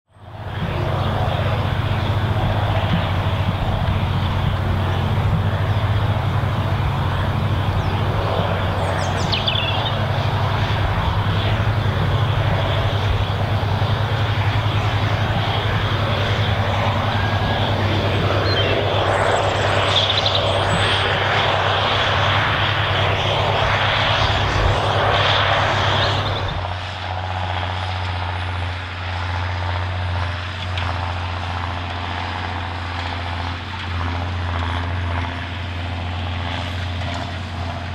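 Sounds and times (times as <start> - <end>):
tractor diesel engine droning: 0.1 - 37.9
bird calls: 7.6 - 10.1, 17.6 - 26.6.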